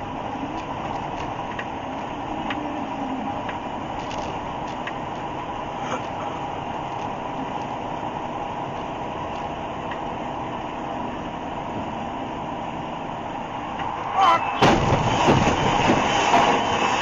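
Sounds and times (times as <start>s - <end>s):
truck engine and road noise: 0.0s - 17.0s.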